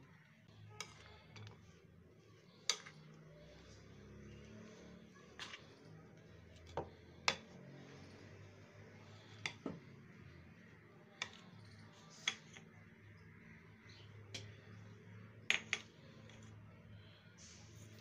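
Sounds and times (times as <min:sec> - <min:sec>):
spoon mixing dry mixture: 0:00.0 - 0:18.0.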